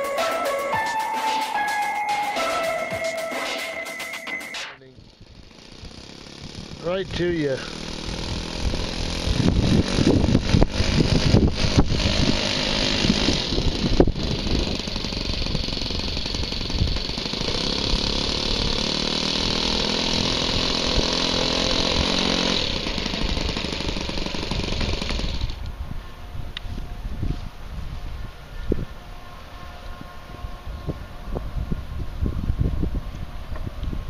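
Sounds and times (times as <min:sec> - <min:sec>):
model plane engine running: 0:04.9 - 0:26.8.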